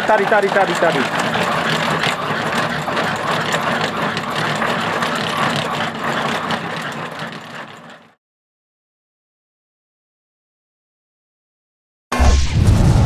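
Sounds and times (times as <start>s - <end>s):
treadmill belt clatter: 0.0s - 8.2s.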